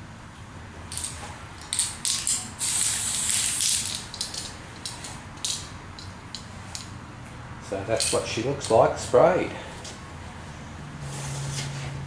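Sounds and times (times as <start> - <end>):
spray paint hissing: 1.7 - 5.0.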